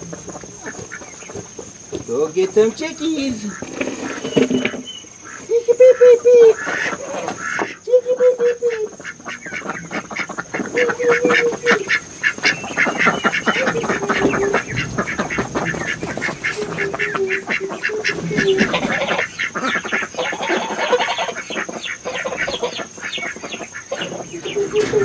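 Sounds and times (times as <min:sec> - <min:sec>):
chicks peeping: 0:00.0 - 0:25.0
lower drawn-out chick calls: 0:03.3 - 0:25.0.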